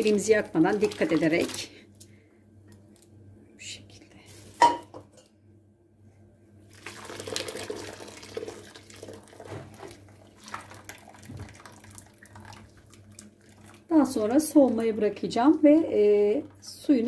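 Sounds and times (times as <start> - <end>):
water draining through colander: 0.0 - 1.7, 6.7 - 17.0
water splashing into bowl: 6.7 - 15.0.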